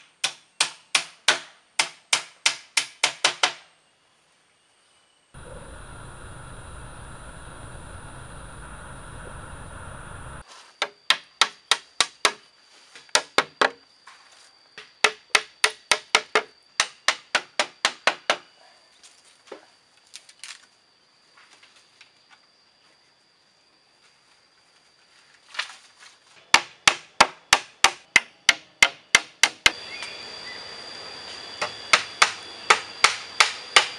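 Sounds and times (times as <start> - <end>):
steady background noise: 5.4 - 10.4.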